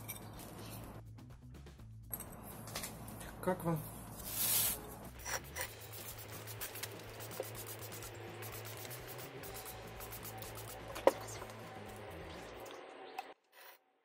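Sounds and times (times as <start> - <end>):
hands rubbing soil: 4.1 - 11.6.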